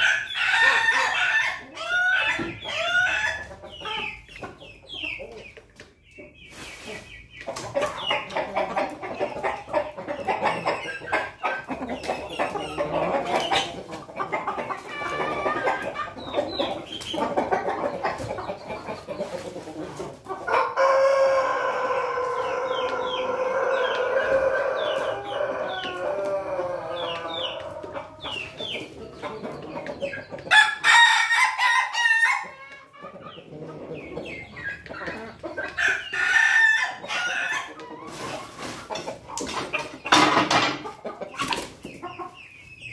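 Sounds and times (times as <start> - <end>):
chickens clucking: 0.0 - 42.9
higher chicken calls: 6.5 - 42.4.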